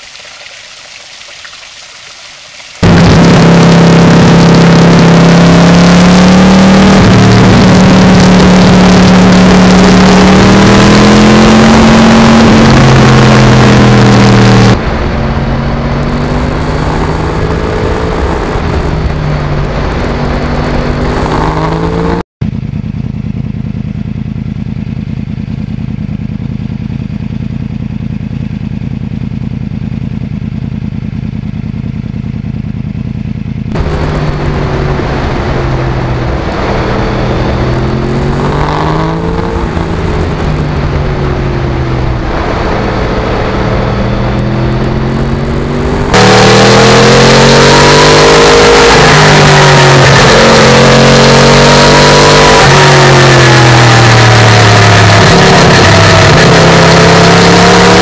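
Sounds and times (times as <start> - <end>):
motorcycle engine while riding: 2.8 - 58.0
steady low rumble: 14.7 - 21.3, 22.4 - 46.3.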